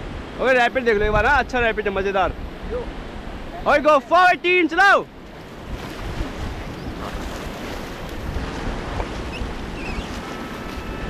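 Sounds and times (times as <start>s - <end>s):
wind buffeting microphone: 0.0s - 3.9s, 5.1s - 11.0s
rushing whitewater: 0.0s - 11.0s.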